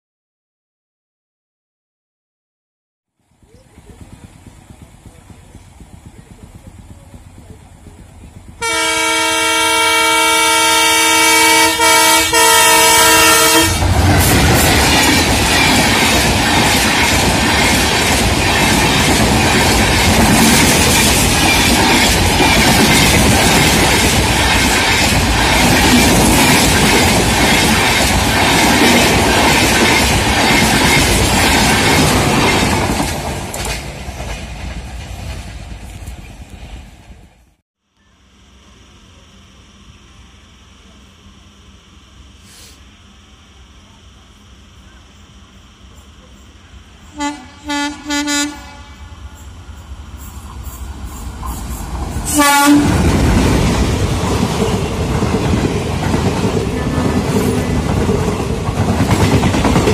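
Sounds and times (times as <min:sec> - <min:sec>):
train passing at speed: 0:03.2 - 0:37.6, 0:44.1 - 0:59.9
locomotive horn blast: 0:08.6 - 0:14.0, 0:47.1 - 0:49.3, 0:52.3 - 0:53.1.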